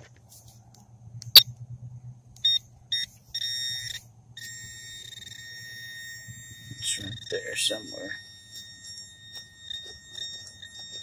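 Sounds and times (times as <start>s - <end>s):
steady continuous tone: 0.3s - 11.0s
pinpointer probe beeping: 2.4s - 11.0s.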